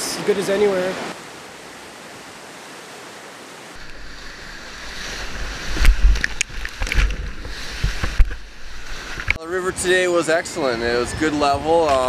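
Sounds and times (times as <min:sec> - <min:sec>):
sharp water splashes: 0:03.8 - 0:09.4
water buffeting microphone: 0:03.8 - 0:10.1.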